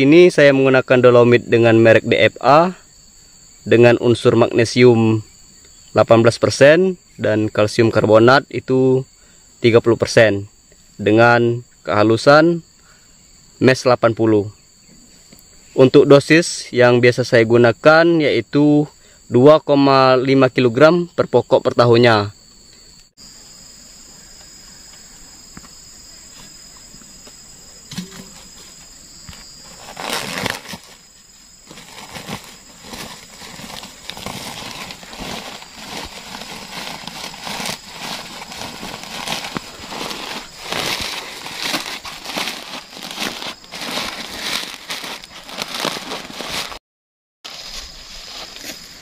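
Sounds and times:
plastic sack rustling: 0:29.6 - 0:46.8.

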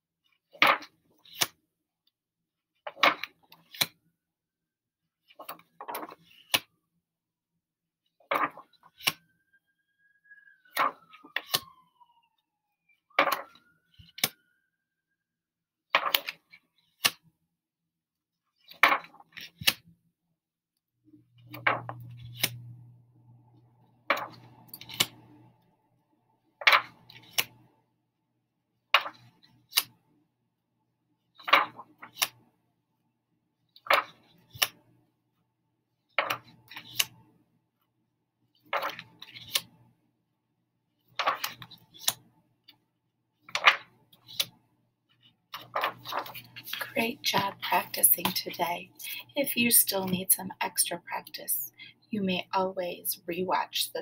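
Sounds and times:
flashcards clicking: 0:00.6 - 0:01.6, 0:02.9 - 0:04.0, 0:05.3 - 0:06.7, 0:08.3 - 0:09.2, 0:10.7 - 0:11.7, 0:13.2 - 0:14.4, 0:16.0 - 0:17.3, 0:18.6 - 0:19.9, 0:21.4 - 0:22.6, 0:24.1 - 0:25.7, 0:26.6 - 0:27.7, 0:29.0 - 0:30.0, 0:31.4 - 0:32.4, 0:33.8 - 0:34.9, 0:36.2 - 0:37.2, 0:38.7 - 0:39.8, 0:41.2 - 0:42.2, 0:43.5 - 0:44.6, 0:45.5 - 0:48.6.

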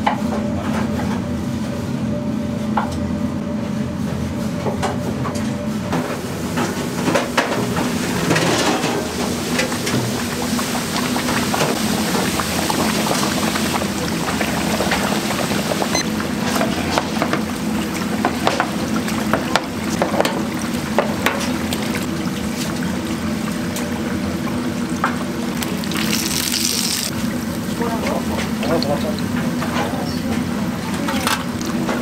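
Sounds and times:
food sizzling with crackles: 0:22.4 - 0:28.6.

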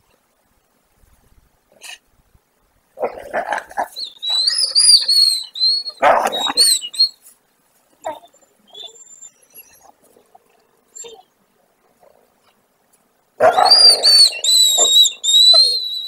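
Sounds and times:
wolves snarling: 0:03.0 - 0:07.1, 0:08.0 - 0:12.6, 0:13.4 - 0:16.0
wolves whining: 0:03.0 - 0:07.2, 0:08.0 - 0:12.6, 0:13.4 - 0:16.0.

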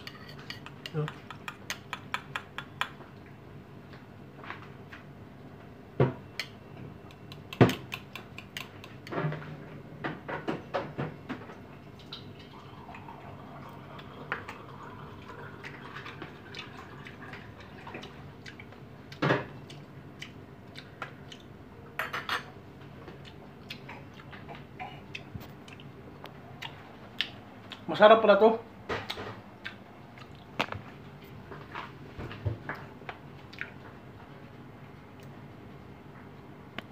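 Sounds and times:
cutlery clinking on ceramic bowls: 0:00.0 - 0:02.8, 0:22.0 - 0:22.5.

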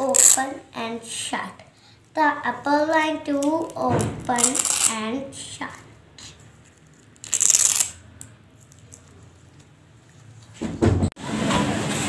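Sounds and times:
hook-and-loop strap ripping: 0:00.1 - 0:00.4, 0:04.3 - 0:05.0, 0:06.7 - 0:09.2.

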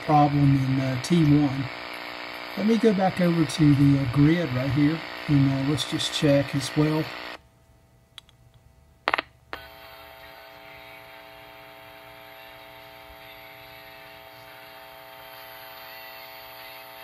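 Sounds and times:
speaker hum with hiss: 0:00.0 - 0:17.0
sharp electrical pop: 0:09.1 - 0:09.3.

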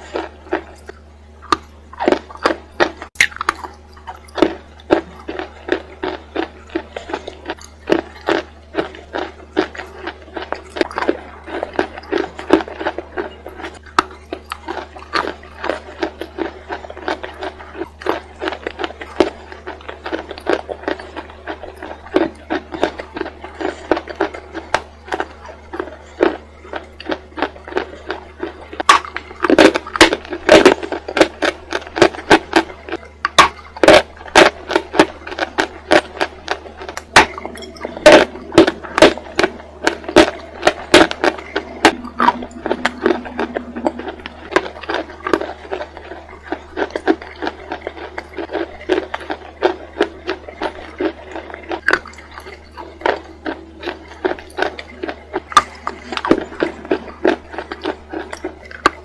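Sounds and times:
chewing crunchy chalk: 0:00.0 - 0:59.0
low hum: 0:00.0 - 0:59.0.

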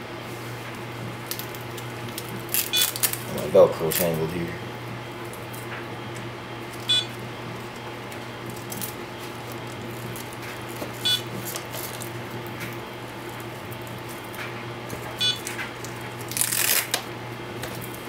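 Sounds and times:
high electronic beep: 0:06.9 - 0:07.1, 0:15.2 - 0:15.4.

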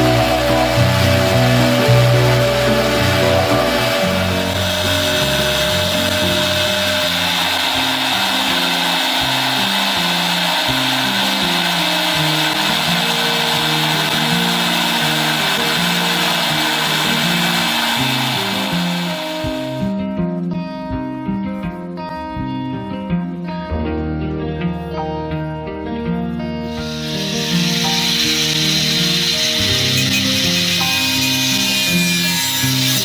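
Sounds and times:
power tool whining: 0:00.0 - 0:20.0, 0:26.7 - 0:33.0
background music: 0:00.0 - 0:33.0.

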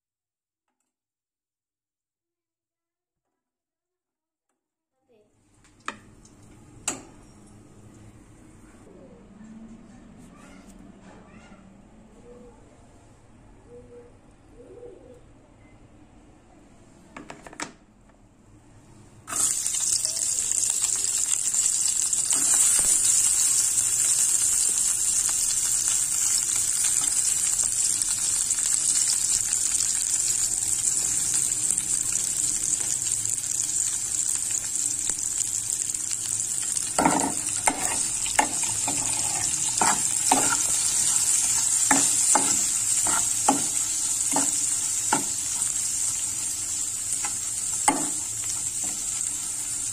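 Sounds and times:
onions sizzling in hot oil: 0:19.3 - 0:49.9
metal spatula scraping a pan: 0:37.0 - 0:45.9.

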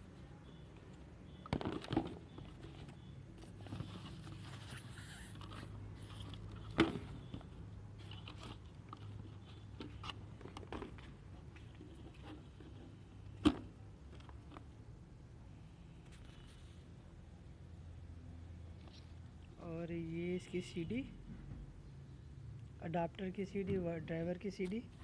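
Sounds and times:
cardboard and packaging rustling: 0:01.5 - 0:13.4.

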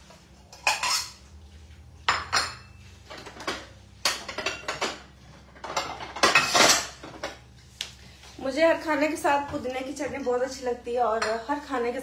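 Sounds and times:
dishes and cutlery clinking: 0:00.5 - 0:01.3, 0:02.0 - 0:07.4.

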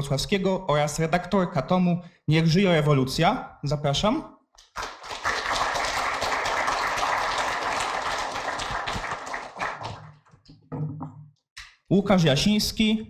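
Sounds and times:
audience applauding: 0:04.6 - 0:10.3.

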